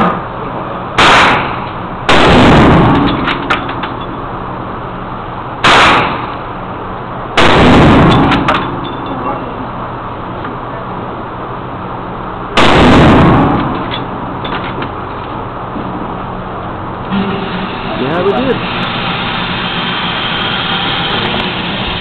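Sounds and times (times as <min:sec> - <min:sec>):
rifle gunshots echoing: 0:01.0 - 0:03.3, 0:05.6 - 0:06.4, 0:07.4 - 0:08.6, 0:12.6 - 0:13.8.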